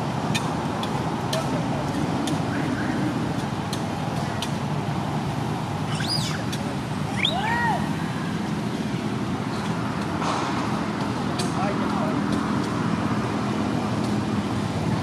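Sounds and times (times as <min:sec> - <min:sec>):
distant road traffic hum: 0:00.0 - 0:15.0
high animal calls: 0:05.9 - 0:07.7.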